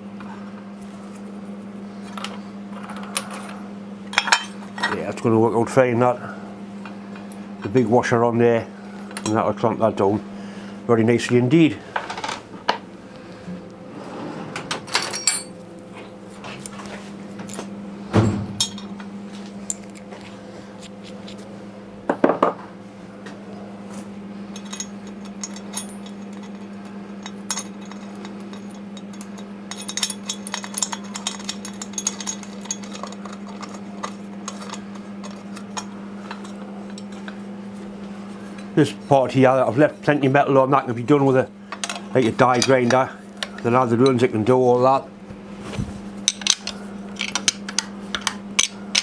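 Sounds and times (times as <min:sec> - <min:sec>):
steady low hum: 0:00.0 - 0:49.0
metal clinks and knocks: 0:14.9 - 0:15.6, 0:18.2 - 0:19.0, 0:24.5 - 0:37.2.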